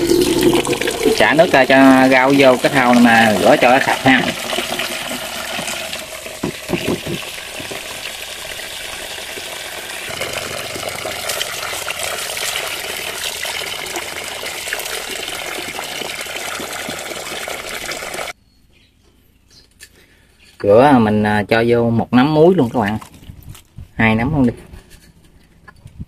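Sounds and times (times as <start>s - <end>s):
tap water running into basin: 0.0s - 18.4s.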